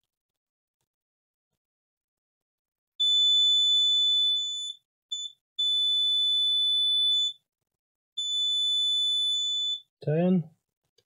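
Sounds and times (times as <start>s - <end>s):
multimeter continuity beeps: 3.0s - 7.4s, 8.2s - 9.9s.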